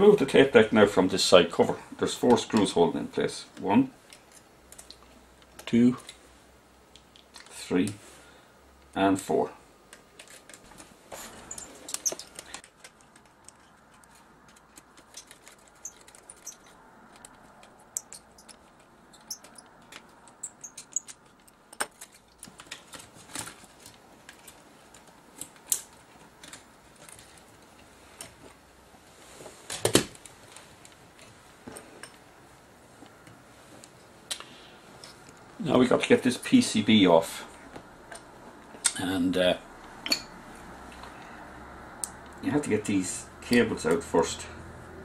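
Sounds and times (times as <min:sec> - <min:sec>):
small metal clicks and rattles: 0:09.9 - 0:28.4.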